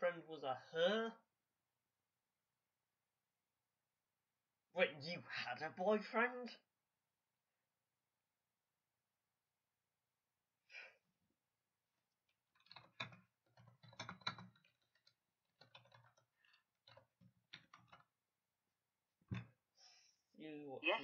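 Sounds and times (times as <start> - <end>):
computer keyboard typing: 12.5 - 18.1.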